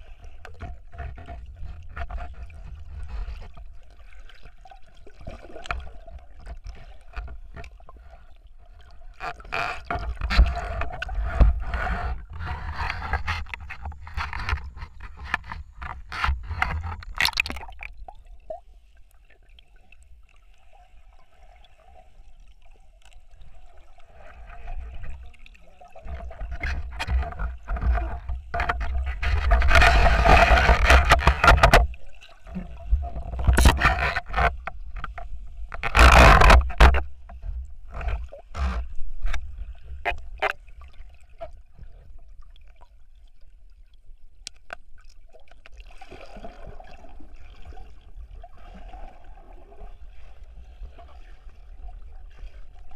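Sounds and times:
gear knocking and scraping underwater: 0:00.0 - 0:43.0, 0:44.0 - 0:52.9
rushing water and bubbles: 0:00.0 - 0:52.9.

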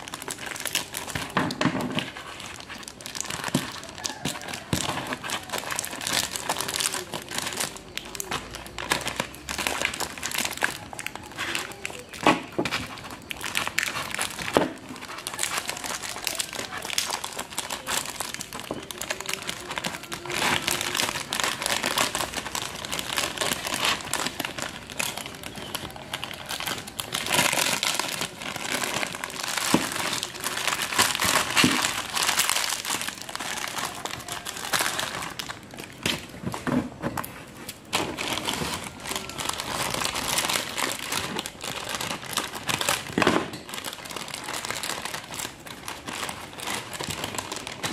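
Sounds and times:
plastic bag crinkling: 0:00.0 - 0:47.9
scissors cutting plastic: 0:00.0 - 0:47.9.

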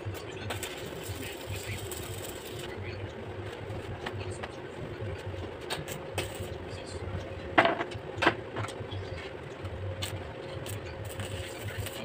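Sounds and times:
steady machine hum: 0:00.0 - 0:12.0.

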